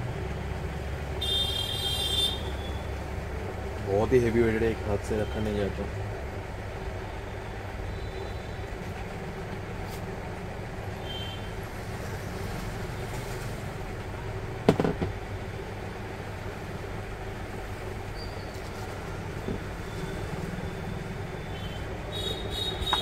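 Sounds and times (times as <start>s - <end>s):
heavy motor set down on table: 14.7s - 15.2s.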